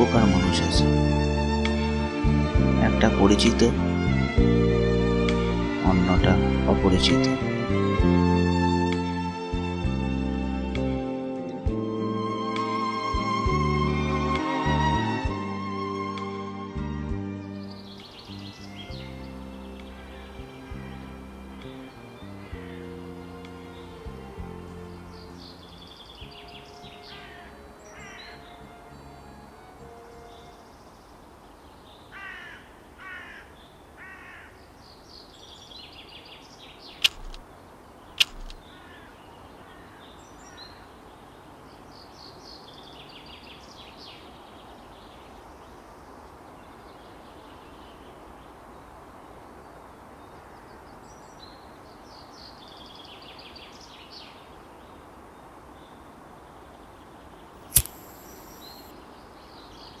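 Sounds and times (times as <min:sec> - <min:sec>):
birds chirping: 0:17.5 - 0:45.9, 0:55.7 - 1:00.0
harsh bird calls: 0:24.8 - 0:28.7, 0:35.9 - 0:41.0
cigarette lighting hiss: 0:37.0 - 0:37.4, 0:38.2 - 0:38.6, 0:57.6 - 0:58.9
lighter clicking: 0:37.0 - 0:37.4, 0:38.2 - 0:38.6, 0:57.6 - 0:58.9.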